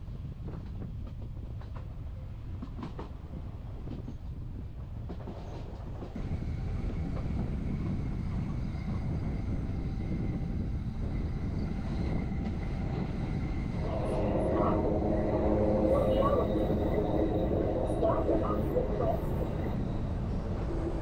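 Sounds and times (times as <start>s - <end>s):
train wheels rumbling on track: 0.0s - 21.0s
faint high whine: 13.6s - 19.9s.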